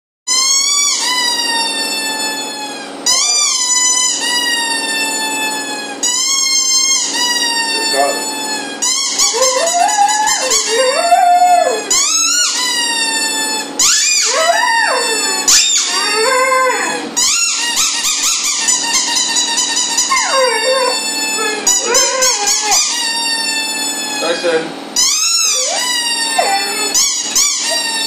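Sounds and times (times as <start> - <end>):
young dog howling: 9.1 - 17.2, 20.0 - 23.1, 25.2 - 28.0.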